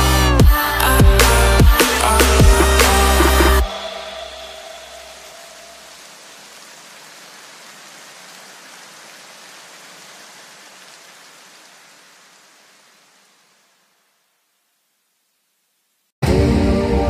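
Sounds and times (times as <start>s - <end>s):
rain-like hiss: 1.8s - 16.2s.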